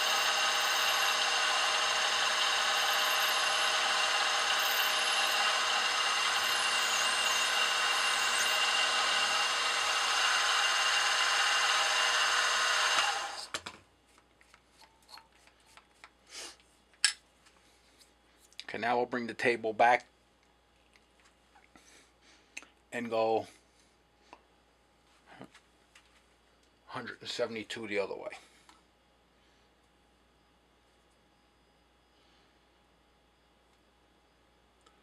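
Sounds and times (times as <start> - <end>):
drill boring into brass: 0.0 - 13.5
mill motor whining: 0.0 - 13.6.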